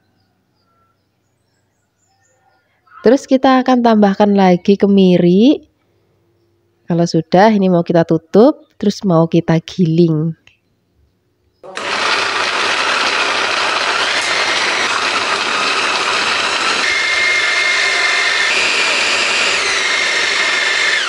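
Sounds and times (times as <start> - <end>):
electric food chopper motor: 11.6 - 21.0.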